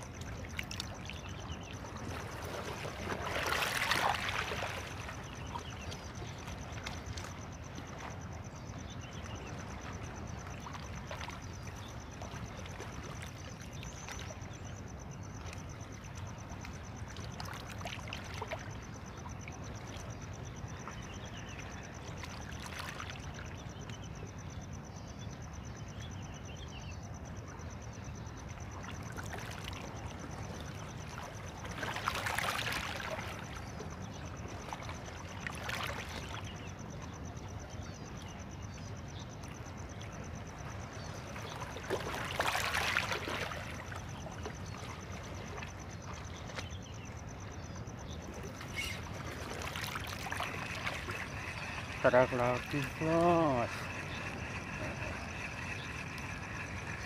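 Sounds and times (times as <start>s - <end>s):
small waves lapping: 0.0s - 24.6s, 27.3s - 57.0s.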